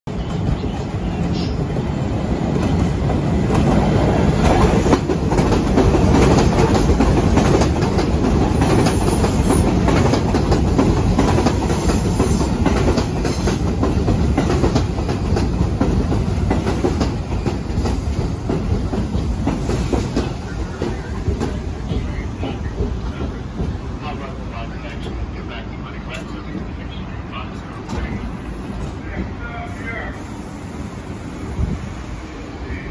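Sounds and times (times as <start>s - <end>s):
train wheels clattering over rail joints: 2.6s - 24.0s.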